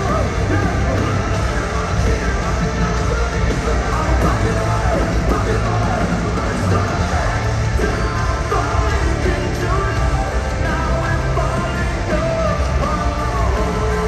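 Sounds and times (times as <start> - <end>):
live rock band playing: 0.0 - 14.0
person singing: 0.0 - 14.0.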